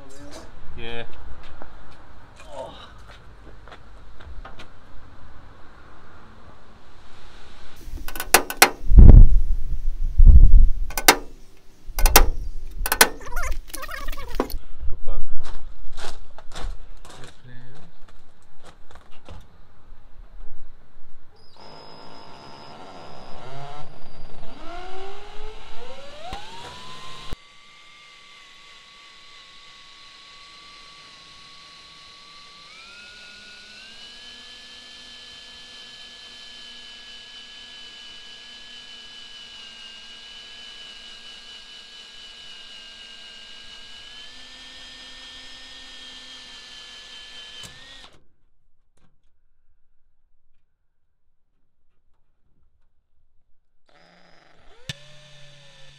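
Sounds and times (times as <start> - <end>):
cordless drill whining: 21.4 - 48.2, 53.9 - 55.9.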